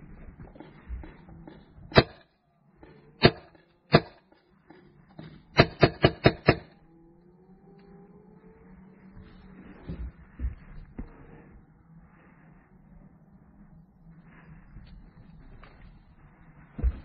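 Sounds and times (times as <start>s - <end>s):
paintball marker shots: 1.9s - 2.3s, 3.2s - 4.4s, 5.5s - 6.8s.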